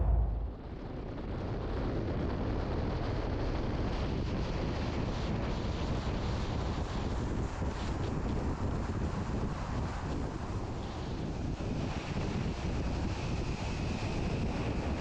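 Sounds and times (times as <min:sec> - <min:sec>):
car road noise: 0:00.0 - 0:00.8
wind on microphone: 0:00.0 - 0:01.7.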